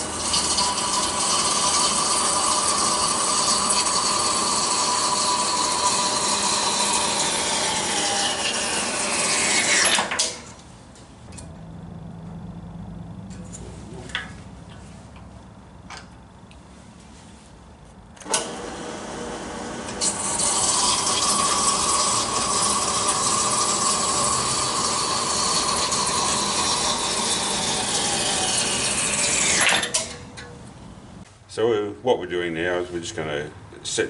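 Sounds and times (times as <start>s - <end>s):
band saw motor running: 0.0s - 10.5s, 18.2s - 30.5s
saw blade cutting plastic: 0.0s - 10.5s, 19.8s - 30.2s.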